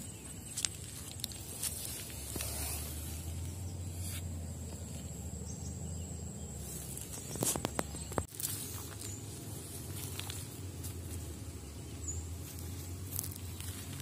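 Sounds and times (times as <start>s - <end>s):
footsteps on pebbles and gravel: 0.0s - 3.5s, 6.6s - 14.0s
stones clicking: 0.5s - 2.5s.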